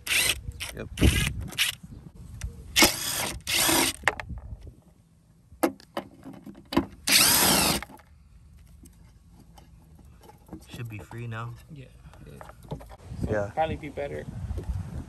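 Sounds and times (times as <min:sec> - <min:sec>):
power driver spinning: 0:00.0 - 0:01.8, 0:07.1 - 0:07.9.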